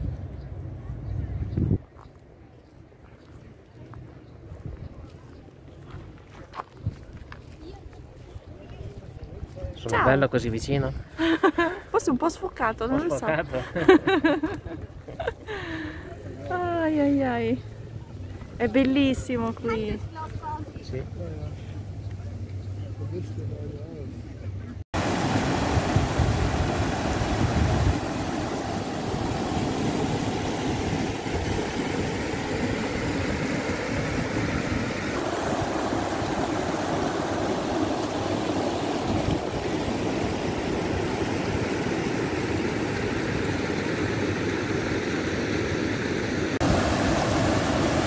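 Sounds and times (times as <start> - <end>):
stream rushing over rocks: 25.0 - 48.0.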